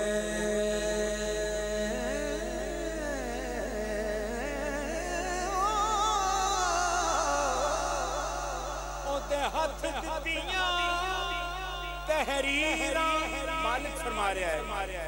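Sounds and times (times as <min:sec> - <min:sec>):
man singing melismatic line: 0:09.0 - 0:15.0.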